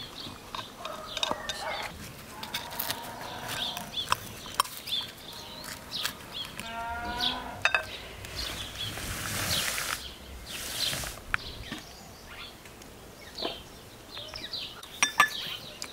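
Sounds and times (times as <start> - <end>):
rustling: 0.0 - 11.8
birds chirping: 0.0 - 15.9
farm animal call: 0.8 - 4.2, 5.3 - 8.9.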